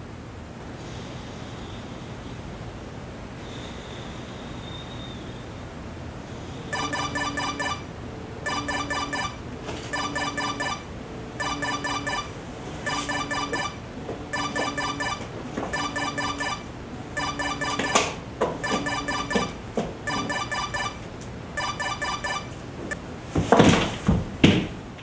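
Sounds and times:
mobile phone ringing: 6.7s - 22.6s.

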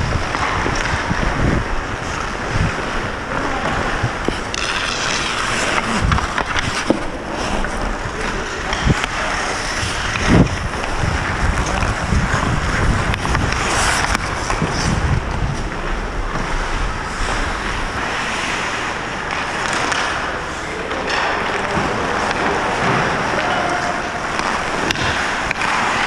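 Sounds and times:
wind rumbling on microphone: 0.0s - 19.1s
skate blades scraping ice: 0.0s - 26.0s.

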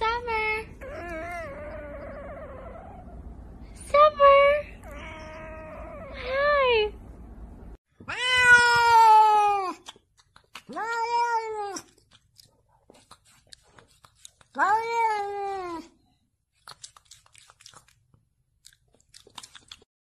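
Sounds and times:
cat meowing: 8.0s - 9.8s.

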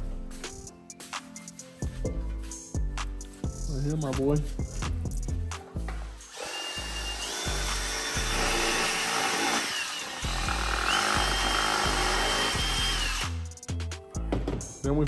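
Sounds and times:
cordless drill whining: 6.3s - 13.3s.

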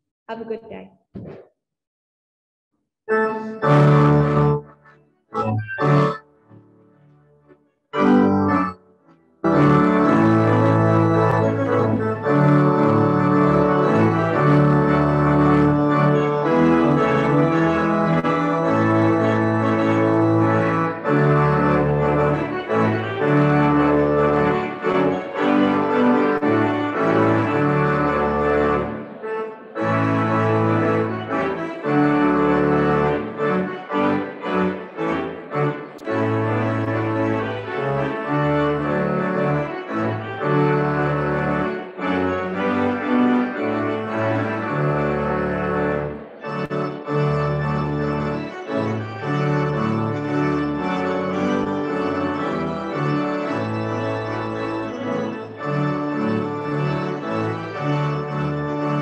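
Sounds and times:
pipe organ chords: 3.1s - 59.0s.

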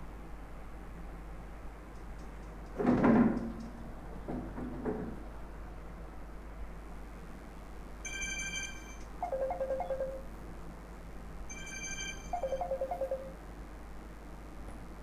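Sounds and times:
electronic ringtone tune: 8.1s - 10.3s, 11.5s - 13.4s.

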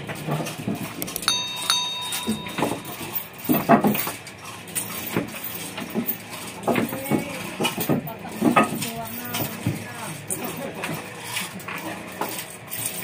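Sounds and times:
sharp metal knocks: 1.0s - 3.8s
high ringing chime: 1.1s - 3.7s
metal chain clanking: 1.1s - 7.0s.

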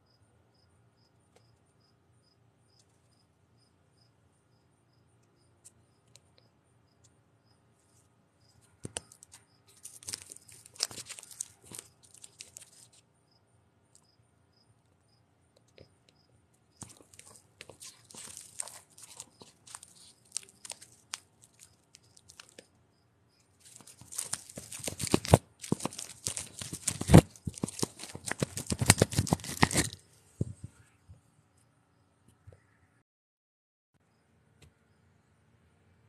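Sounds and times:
fingers scraping on phone: 16.8s - 22.6s, 23.7s - 30.8s.

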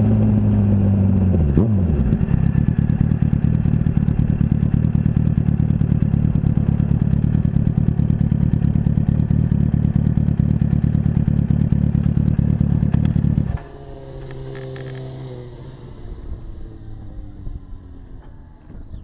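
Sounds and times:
motorcycle engine idling: 0.0s - 19.0s
hum falling in pitch: 13.0s - 19.0s.

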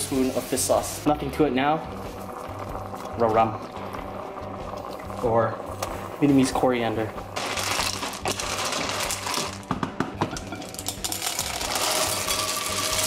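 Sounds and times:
shells rattling into bowl: 7.4s - 9.6s, 10.5s - 13.0s
snail shells clattering in pan: 7.4s - 9.7s, 10.4s - 13.0s.

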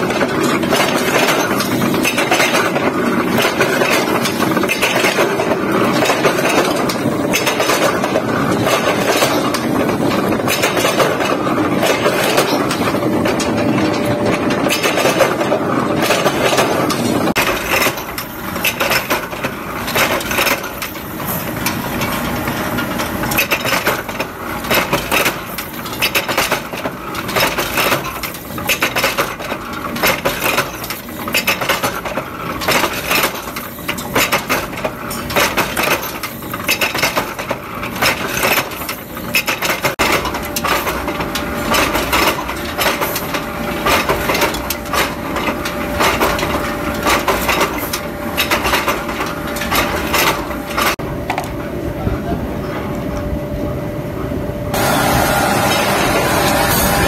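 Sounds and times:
forging press clattering: 0.0s - 51.0s.

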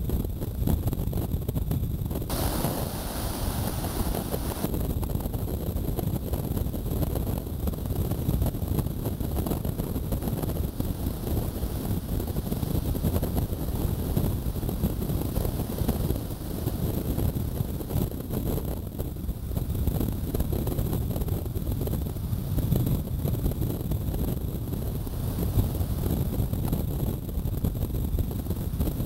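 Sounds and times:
wind buffeting microphone: 0.0s - 29.0s
breaking surf hiss: 2.3s - 4.7s
bright hiss: 2.3s - 4.7s.

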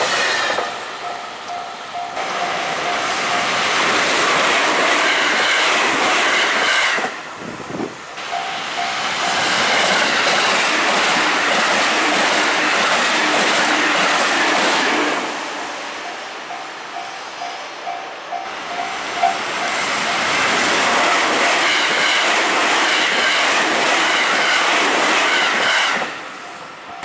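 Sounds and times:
trains rushing with wheel clatter: 0.0s - 27.0s
crossing warning bell ringing: 0.7s - 3.8s, 8.2s - 9.7s, 16.0s - 20.4s, 26.3s - 27.0s.

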